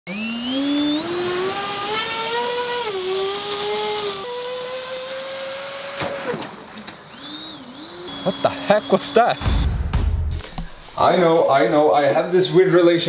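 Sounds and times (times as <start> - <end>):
electric ducted fan whining: 0.1 - 9.6.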